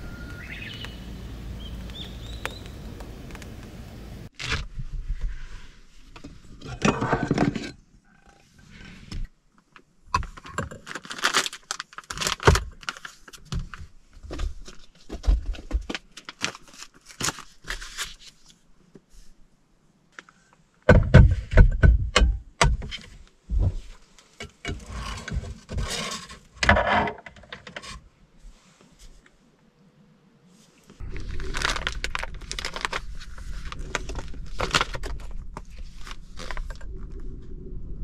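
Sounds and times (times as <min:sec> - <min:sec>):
packaging rustling: 0:31.0 - 0:36.8.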